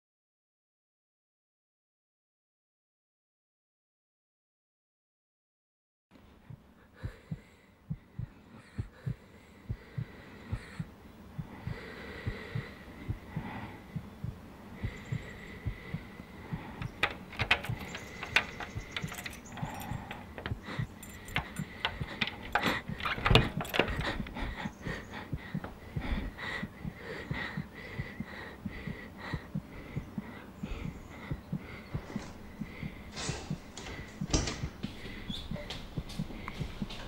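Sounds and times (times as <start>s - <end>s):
heartbeat thumps: 6.4s - 37.0s
sharp clicks and rattles: 16.7s - 25.8s.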